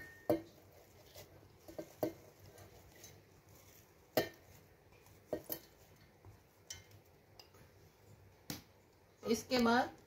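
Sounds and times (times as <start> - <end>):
kitchenware clinking on metal jar: 0.0 - 0.6.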